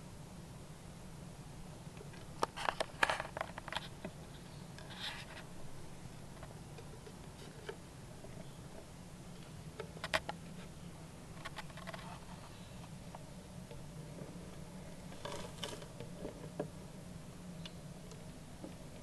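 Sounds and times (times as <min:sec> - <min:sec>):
steady low hum: 0:00.0 - 0:19.0
brief rustle: 0:02.1 - 0:05.5.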